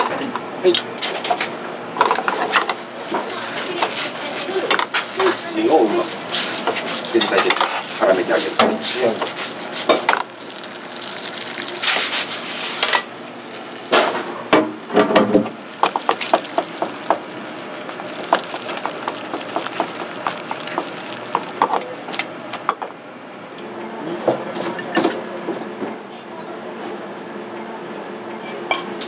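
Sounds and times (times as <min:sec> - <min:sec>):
frying pan sizzling: 0:02.0 - 0:22.7.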